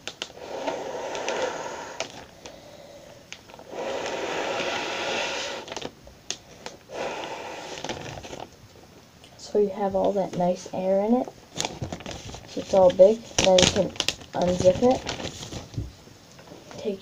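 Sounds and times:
plastic bag crinkling: 0.0 - 2.7, 3.3 - 4.8, 5.5 - 6.9, 7.7 - 8.6, 11.4 - 16.8
person blowing into plastic bag: 0.2 - 2.8, 3.5 - 5.9, 6.8 - 8.3.

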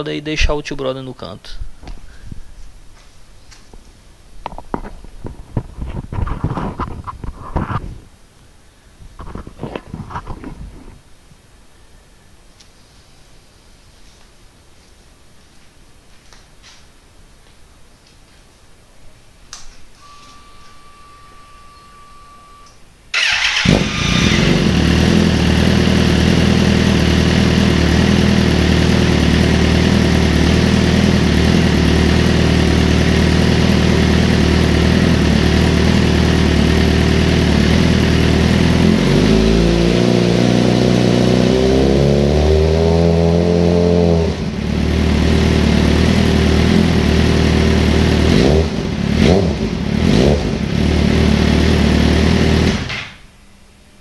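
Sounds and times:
motorcycle engine idling and revving: 23.2 - 53.0.

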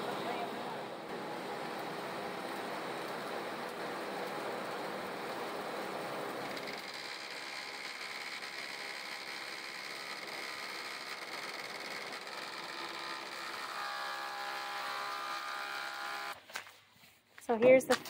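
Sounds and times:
thickness planer cutting wood: 6.5 - 16.4.

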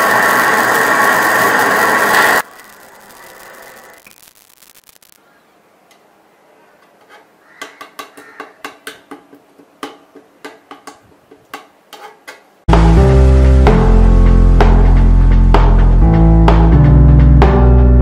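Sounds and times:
soft hiss of flames: 0.8 - 5.3
knife scraping plastic on metal pot: 6.8 - 8.8, 9.9 - 12.5.

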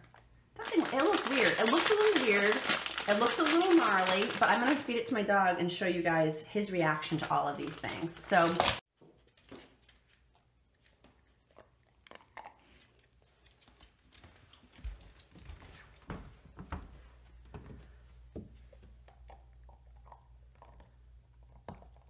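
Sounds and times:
dog gnawing chew: 10.0 - 15.4, 19.0 - 22.0.

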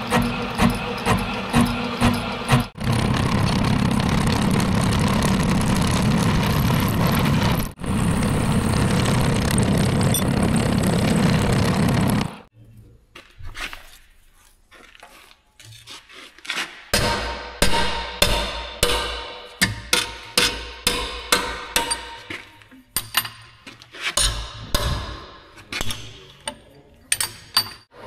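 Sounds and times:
boring machine cutting steel: 0.0 - 7.6.

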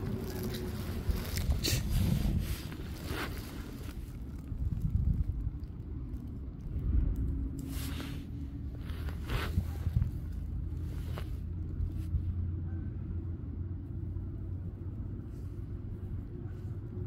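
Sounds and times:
rustling: 0.0 - 6.6, 7.2 - 12.4
low outdoor rumble: 0.0 - 17.0.

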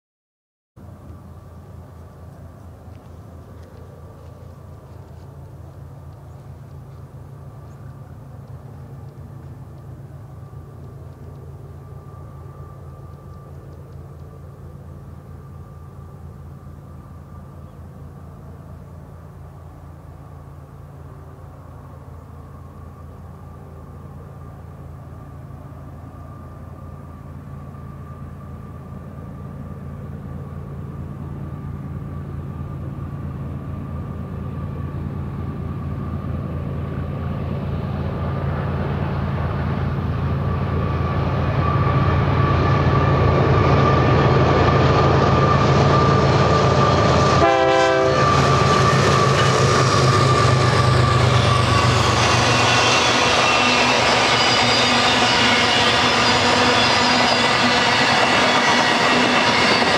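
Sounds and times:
diesel locomotive engine drone: 0.8 - 59.9
steady high whine: 0.8 - 59.9
train rolling by: 0.8 - 59.9.

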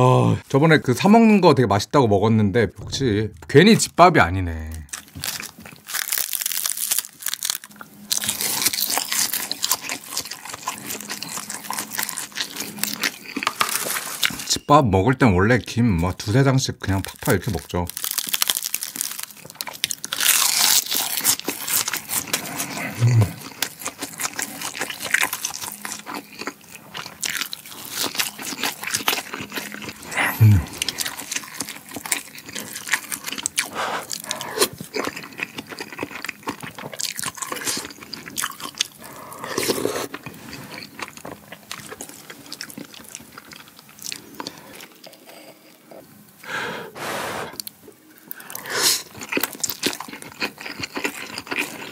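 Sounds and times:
crunching and chewing: 4.7 - 14.5, 16.8 - 46.5, 47.5 - 51.9
wet mouth sounds: 29.9 - 31.0.

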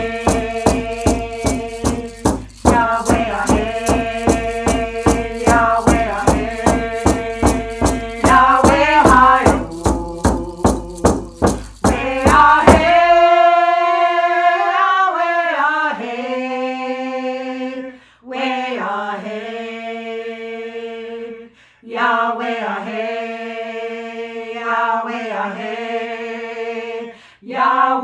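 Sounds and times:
steady percussion beat: 0.0 - 13.2
voices singing in unison: 0.0 - 28.0.

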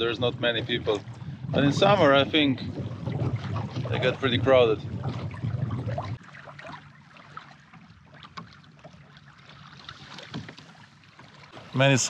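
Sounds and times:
wind rumble on microphone: 0.0 - 6.2
water lapping against hull: 0.0 - 12.0.

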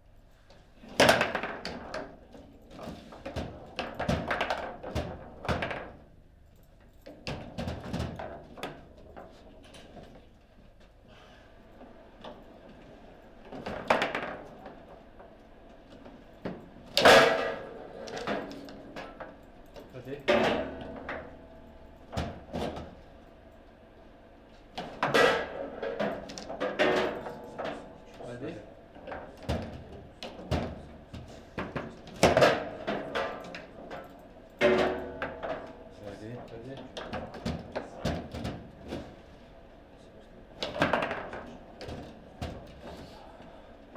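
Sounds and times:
foosball ball knocking: 1.0 - 2.2, 3.0 - 6.0, 13.5 - 15.0, 16.5 - 19.4, 20.3 - 23.0, 24.8 - 28.0, 31.6 - 34.0, 34.6 - 36.0, 40.6 - 42.8.

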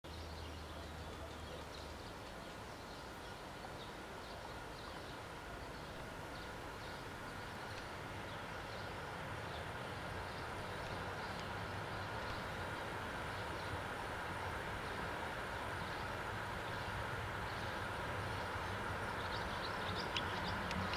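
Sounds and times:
birds chirping: 0.1 - 20.9
electric train hum and whine: 2.0 - 20.9.

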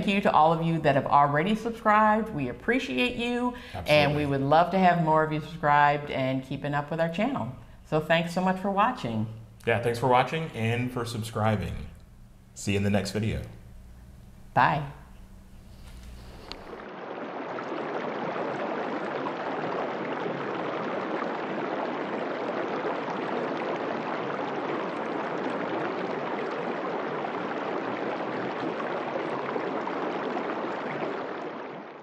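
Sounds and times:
rushing water: 16.3 - 32.0.

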